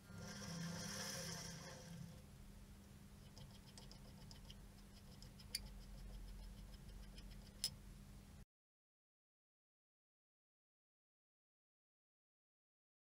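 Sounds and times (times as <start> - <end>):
low steady hum: 0.0 - 8.4
faint rapid ticking: 3.2 - 7.7.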